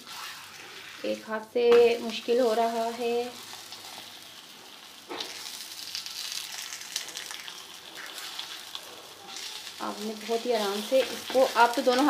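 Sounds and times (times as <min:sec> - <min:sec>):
flatbread sizzling in oil: 0:00.0 - 0:12.0.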